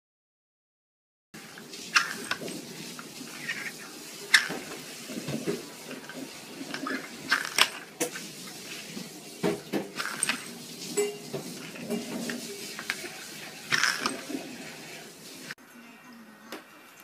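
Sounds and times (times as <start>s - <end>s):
plastic lids clacking on wooden floor: 11.3s - 14.3s.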